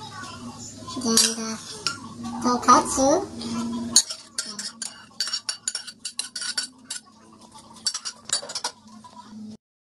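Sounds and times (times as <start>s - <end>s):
utensil clinking on pan: 4.0s - 7.1s, 7.8s - 8.8s.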